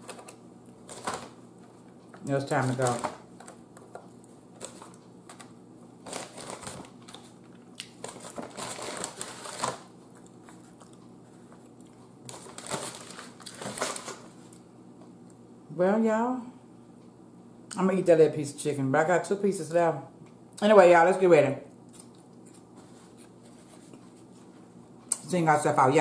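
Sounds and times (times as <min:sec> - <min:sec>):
paper bag rustling and crinkling: 0:00.0 - 0:03.6, 0:04.5 - 0:11.6, 0:12.2 - 0:14.5.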